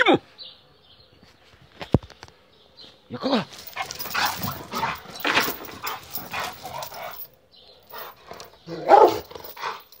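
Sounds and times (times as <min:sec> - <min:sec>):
dog barking: 0:08.8 - 0:09.3.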